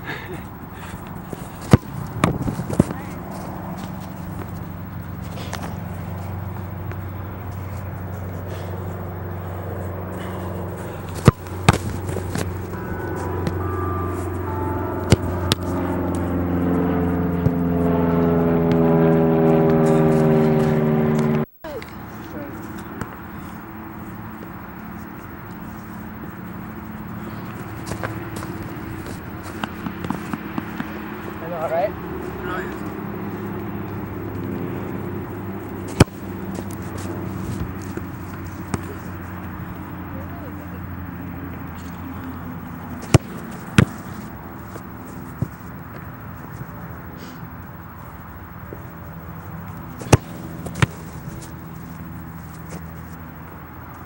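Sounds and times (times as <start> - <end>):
engine drone: 0.0 - 54.0
steady low hum: 0.0 - 54.0
soccer ball thuds: 0.8 - 5.8, 10.2 - 18.0, 27.3 - 31.2, 35.8 - 39.2, 42.9 - 44.8, 45.4 - 46.1, 49.9 - 51.9.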